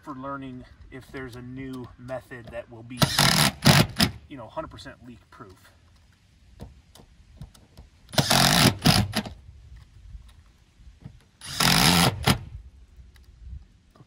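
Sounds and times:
impact driver driving screws: 3.0s - 4.2s, 8.1s - 9.4s, 11.4s - 12.5s.

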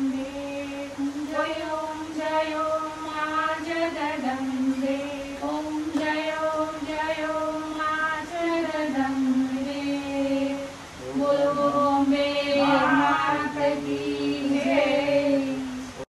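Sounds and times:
lower voice chanting: 0.0s - 16.0s
higher voice chanting: 11.0s - 16.0s.

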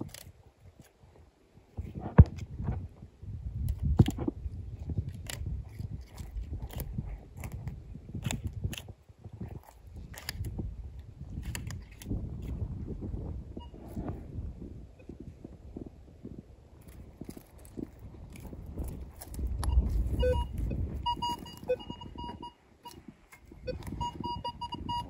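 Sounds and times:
twig snapping: 0.0s - 0.9s, 5.0s - 8.9s, 9.6s - 10.6s, 11.4s - 12.2s
low microphone handling rumble: 1.8s - 25.0s.

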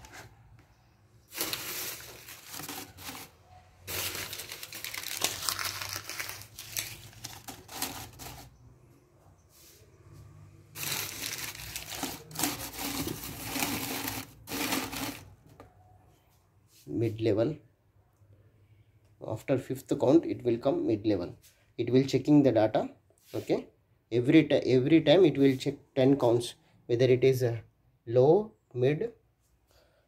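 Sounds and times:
newspaper rustling and crinkling: 0.0s - 0.4s, 1.2s - 8.6s, 10.8s - 15.4s.

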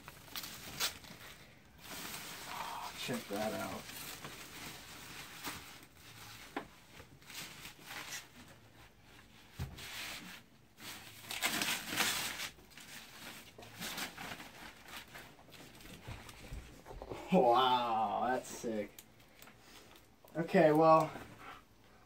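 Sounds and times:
plastic wrap crinkling: 0.0s - 9.4s, 10.7s - 16.8s.

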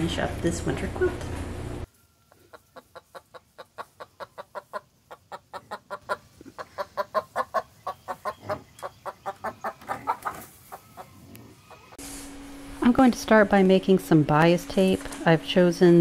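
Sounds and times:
hen clucking: 2.3s - 12.0s.

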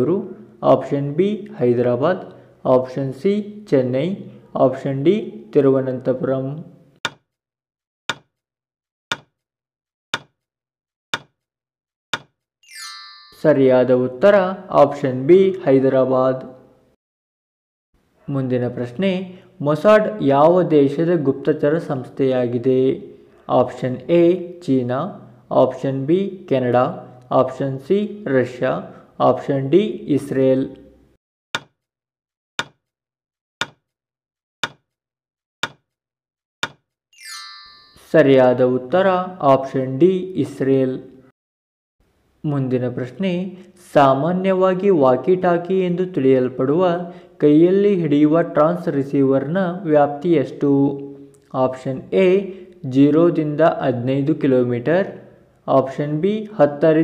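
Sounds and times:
countdown timer clock ticks: 9.1s - 9.4s, 10.2s - 10.4s, 11.2s - 11.4s, 32.6s - 32.8s, 33.6s - 33.8s, 34.6s - 34.9s, 35.6s - 35.9s, 36.6s - 36.8s
bright chime: 12.6s - 13.6s, 37.2s - 38.2s.

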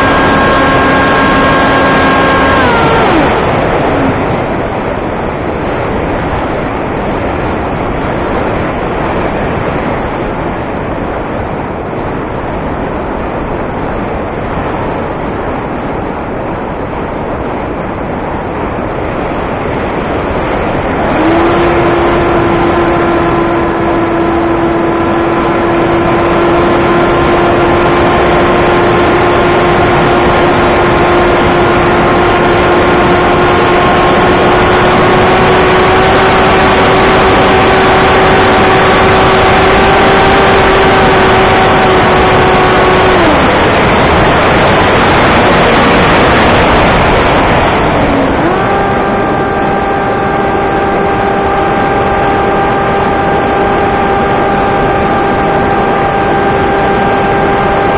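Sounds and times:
model plane motor whine: 0.0s - 4.2s, 21.0s - 43.7s, 46.6s - 57.9s
air rushing over model plane: 0.0s - 5.0s, 19.9s - 57.9s.

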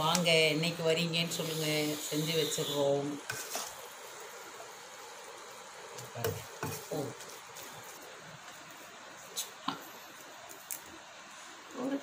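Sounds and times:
faint steady hiss: 0.0s - 12.0s
spatula scraping frying pan: 1.3s - 3.9s.

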